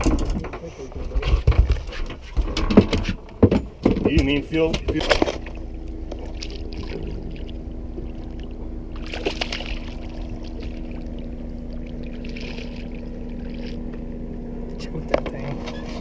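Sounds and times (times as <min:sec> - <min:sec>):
low hum: 0:00.0 - 0:16.0
fish splashing at water surface: 0:06.2 - 0:14.0.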